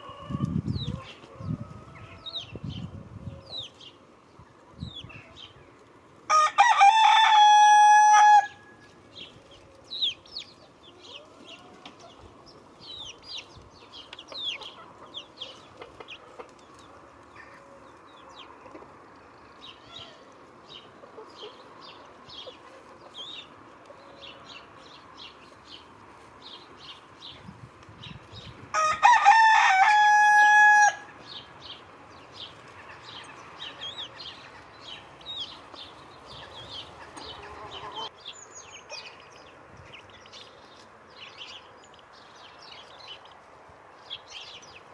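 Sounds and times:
small songbirds chirping: 0.4s - 6.0s, 8.8s - 28.7s, 31.1s - 44.9s
rooster crowing: 6.3s - 8.8s, 28.7s - 31.1s.

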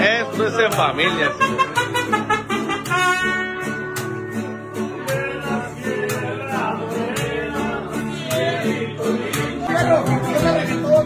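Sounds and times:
guitars strummed: 0.0s - 11.0s
person singing: 4.4s - 11.0s.

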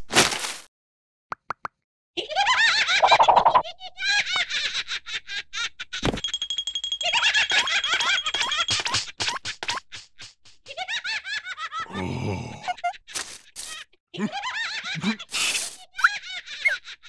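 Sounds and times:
high-pitched cartoon laughter: 14.2s - 17.0s.

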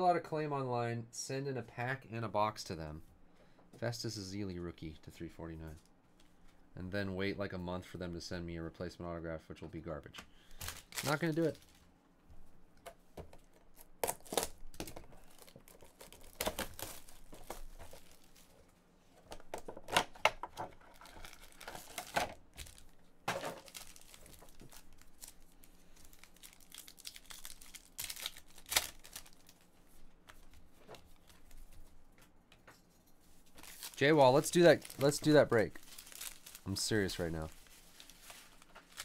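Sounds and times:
wrapper tearing and crinkling: 10.6s - 11.8s, 13.7s - 18.6s, 20.7s - 29.7s, 33.6s - 39.0s.

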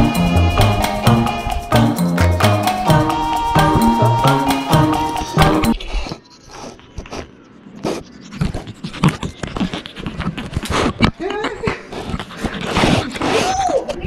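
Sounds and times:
puppy sniffing and licking: 5.8s - 13.5s.

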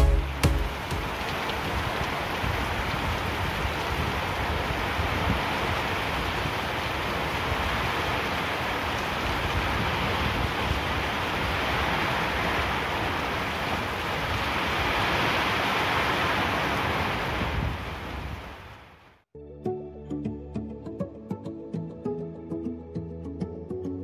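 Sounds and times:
heavy rain hissing: 0.0s - 19.2s.

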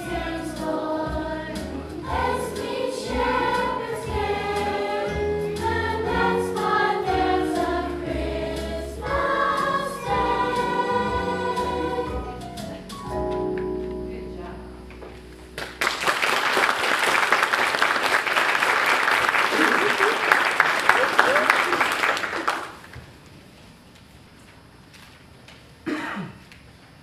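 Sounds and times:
children's choir singing: 0.0s - 12.4s
audience applause: 15.6s - 23.0s.

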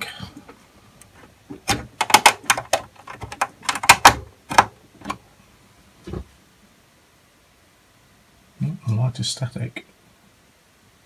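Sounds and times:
cable plug clicks and rattles: 1.5s - 5.2s.

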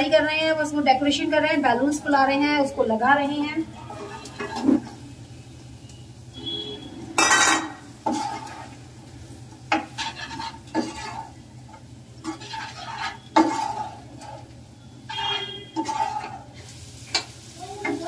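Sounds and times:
faint sizzling: 0.0s - 18.0s
spatula scraping a frying pan: 3.8s - 5.0s, 7.2s - 8.8s, 9.7s - 11.4s, 12.2s - 18.0s.

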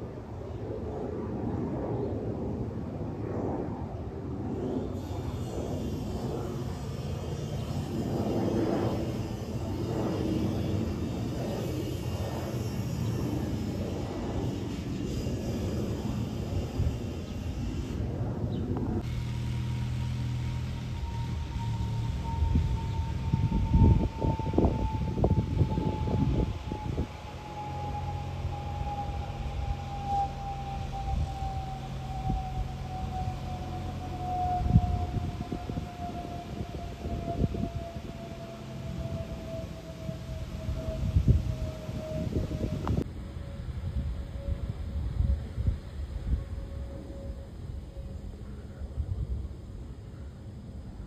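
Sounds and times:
low rumble: 0.0s - 36.3s
jet airliner passing overhead: 0.0s - 51.0s.

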